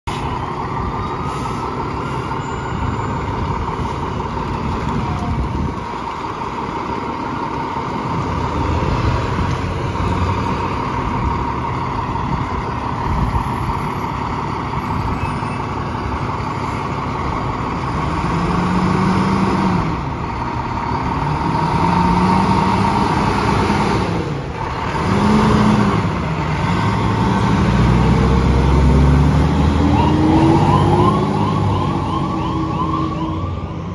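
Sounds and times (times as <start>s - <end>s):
truck diesel engine revving: 3.2s - 33.9s
rising tone: 27.7s - 33.9s.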